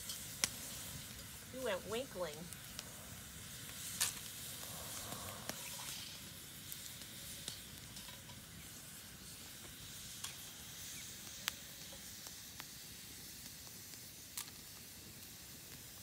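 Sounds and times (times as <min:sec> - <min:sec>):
food sizzling in a skillet: 0:00.0 - 0:16.0.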